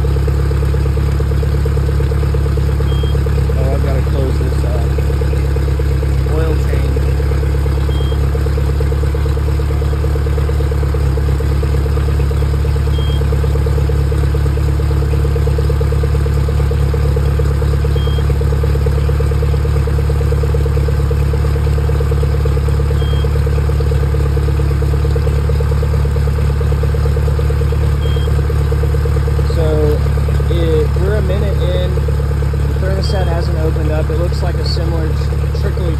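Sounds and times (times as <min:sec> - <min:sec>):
outboard engine idling: 0:00.0 - 0:35.9
faint short beep: 0:02.9 - 0:03.2, 0:07.9 - 0:08.2, 0:12.9 - 0:13.2, 0:23.0 - 0:23.3, 0:28.0 - 0:28.4.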